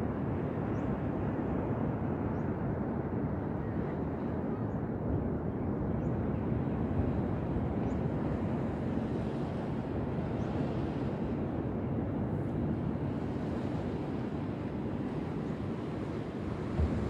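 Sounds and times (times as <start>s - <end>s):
ocean surf washing on beach: 8.2s - 17.0s.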